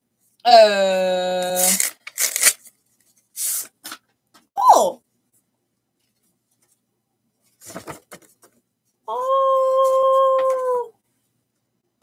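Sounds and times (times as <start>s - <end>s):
paper rustling: 1.6s - 4.0s.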